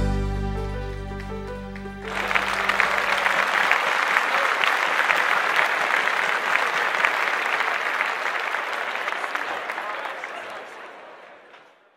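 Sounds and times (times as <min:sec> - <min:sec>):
low chord of backing track: 0:00.0 - 0:03.1
audience applause: 0:01.2 - 0:11.9.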